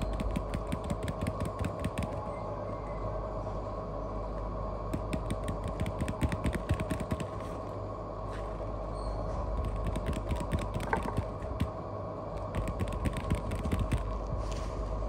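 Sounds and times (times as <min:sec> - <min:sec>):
light clicks and scratches on mat: 0:00.0 - 0:02.2, 0:04.9 - 0:07.7, 0:09.5 - 0:11.7, 0:12.4 - 0:15.0
steady hum with tones: 0:00.0 - 0:15.0.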